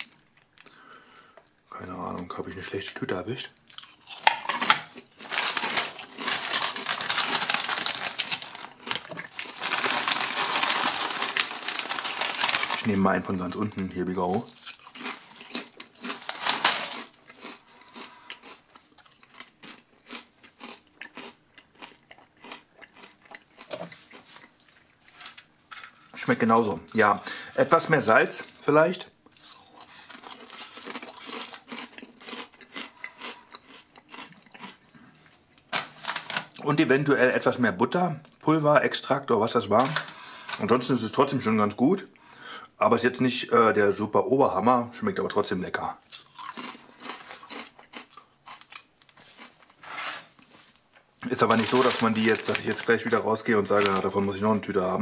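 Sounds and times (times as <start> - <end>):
crisp packet rustling: 3.6 - 23.1, 24.1 - 34.7, 35.7 - 36.7, 39.7 - 41.1, 46.1 - 54.6.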